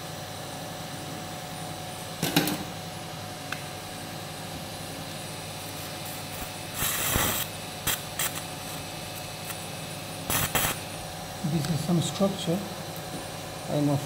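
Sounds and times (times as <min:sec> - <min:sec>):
operating room hum: 0:00.0 - 0:14.0
electrocautery hiss: 0:05.6 - 0:13.0.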